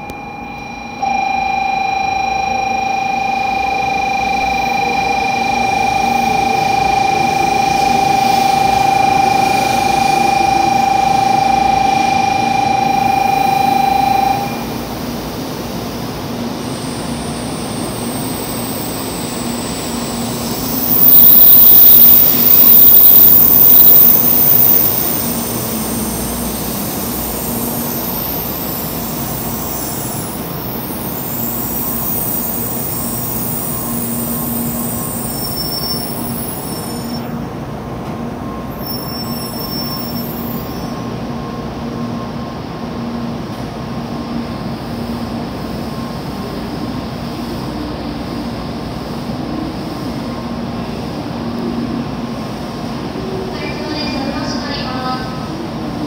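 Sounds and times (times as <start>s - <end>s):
steady tone: 0.0s - 37.5s
train rolling rumble: 3.5s - 56.0s
loud high brake squeal: 16.8s - 37.3s, 38.7s - 41.0s.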